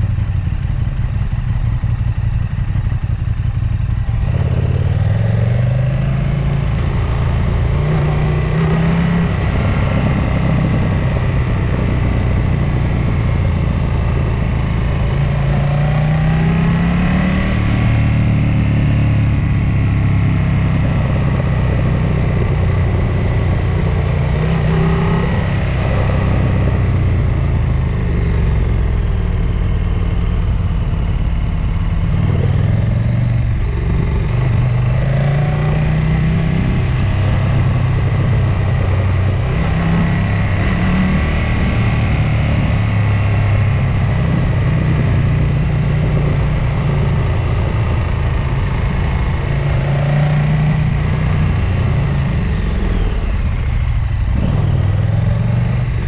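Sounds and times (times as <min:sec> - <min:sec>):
road and wind noise: 0:00.0 - 0:56.0
vehicle engine revving: 0:04.1 - 0:56.0.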